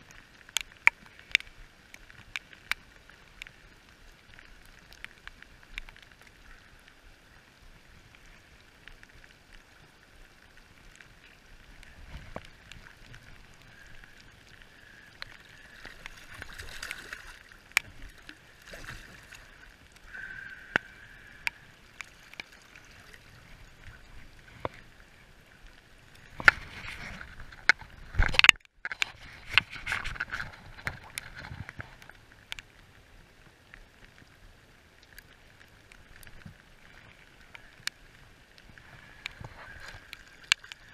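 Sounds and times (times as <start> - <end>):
steady rain: 0.0 - 40.9
fish splashing and thrashing: 11.8 - 24.9, 26.2 - 32.0.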